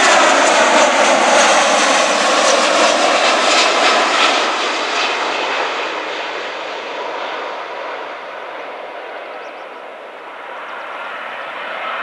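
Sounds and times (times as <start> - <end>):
jet airliner engine roar: 0.0 - 12.0.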